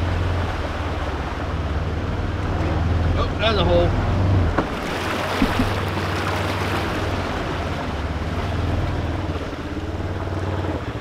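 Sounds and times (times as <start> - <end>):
muddy water splashing: 0.0 - 11.0.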